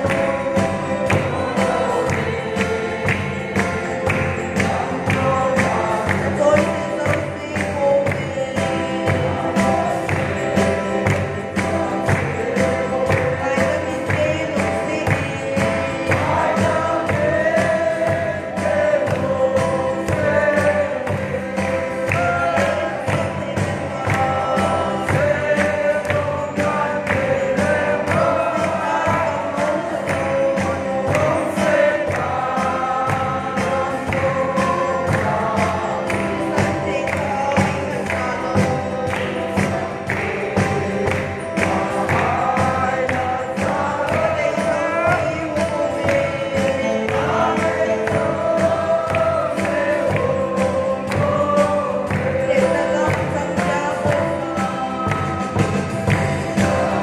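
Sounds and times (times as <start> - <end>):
group singing gospel: 0.0 - 57.0
percussion beat: 0.0 - 57.0.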